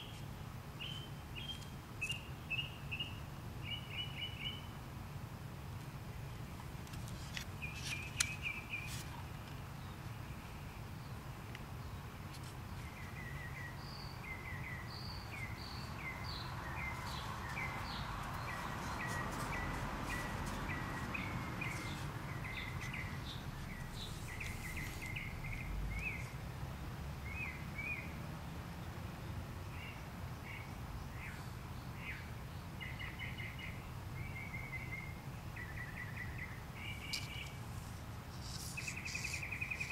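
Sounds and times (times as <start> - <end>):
small birds chirping: 0.0 - 4.8, 6.2 - 26.6, 29.6 - 39.9.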